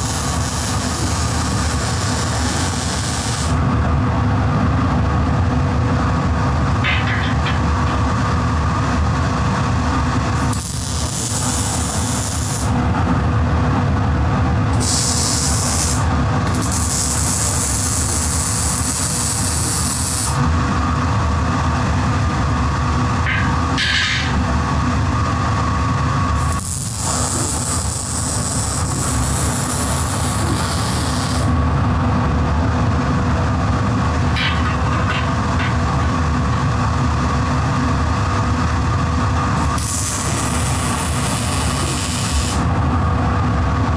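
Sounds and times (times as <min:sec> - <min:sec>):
welding arc hissing: 0:00.0 - 0:03.6, 0:10.4 - 0:12.8, 0:14.8 - 0:20.4, 0:26.4 - 0:31.5, 0:39.7 - 0:42.7.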